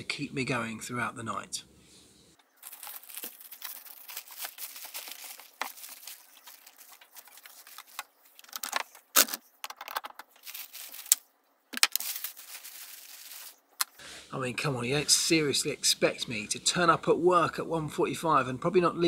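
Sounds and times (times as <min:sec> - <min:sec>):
plastic wrapping rustling: 0:02.4 - 0:13.9.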